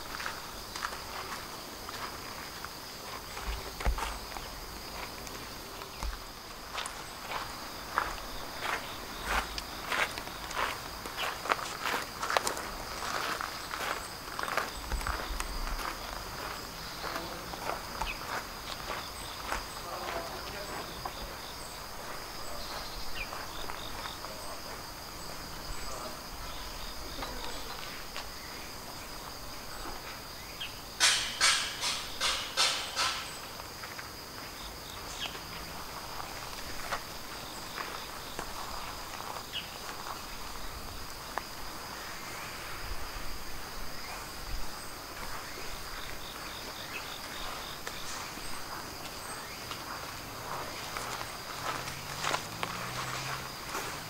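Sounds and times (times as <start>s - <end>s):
footsteps on sand: 0.0s - 30.4s, 31.2s - 54.0s
insect chirps: 0.0s - 54.0s
insects high-pitched shrill: 0.0s - 54.0s.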